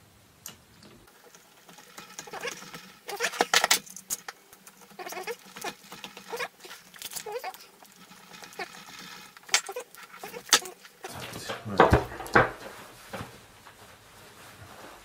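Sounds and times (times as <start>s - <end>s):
screws squeaking: 1.0s - 11.4s
screwdriver scraping and clicking: 1.2s - 11.3s.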